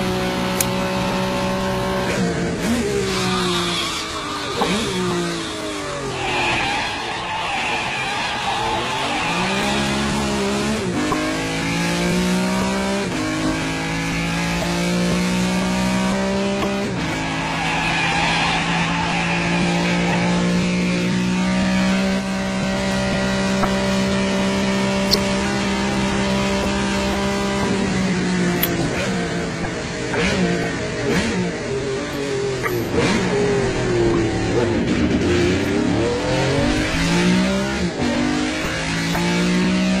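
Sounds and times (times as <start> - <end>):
sports car engine revving: 0.0 - 40.0
tyres squealing: 5.8 - 10.4, 17.0 - 21.0.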